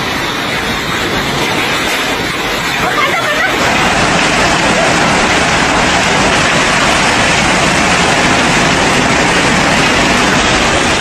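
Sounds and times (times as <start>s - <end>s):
heavy rain: 0.0s - 11.0s
strong wind: 0.0s - 11.0s.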